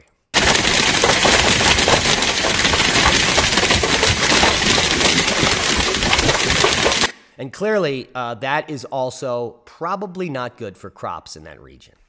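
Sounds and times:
hailstones clattering: 0.4 - 7.1.

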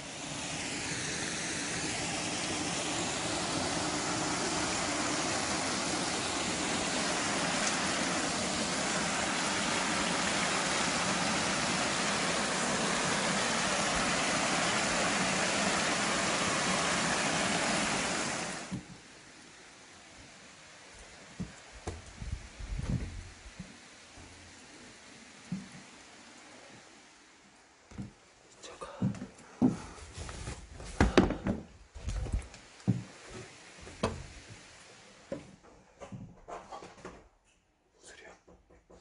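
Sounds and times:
stream running over rocks: 0.0 - 22.0.

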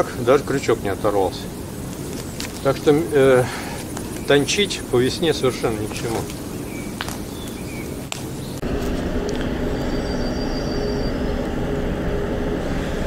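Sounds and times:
boat engine drone: 8.6 - 13.0.

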